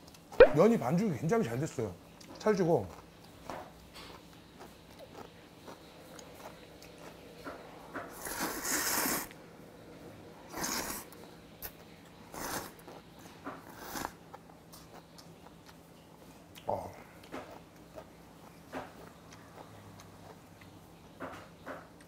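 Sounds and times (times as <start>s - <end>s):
man slurping noodles: 8.2s - 9.3s, 10.5s - 11.0s.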